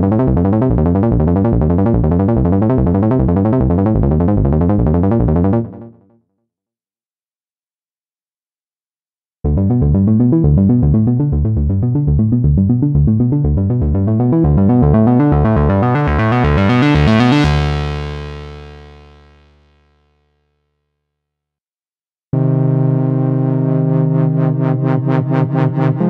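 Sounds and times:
synthesizer bass pattern: 0.0 - 6.0, 9.4 - 19.2, 22.4 - 26.0.

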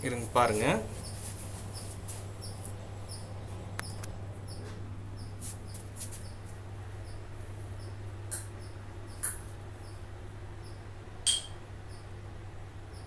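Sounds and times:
steady low hum: 0.0 - 13.0
sharp click: 11.3 - 11.6.

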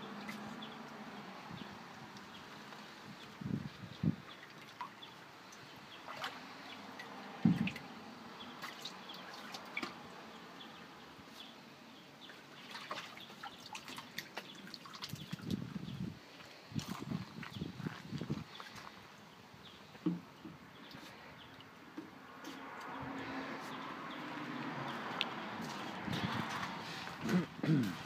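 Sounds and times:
water splashing and dripping: 4.0 - 10.3, 12.2 - 15.8.

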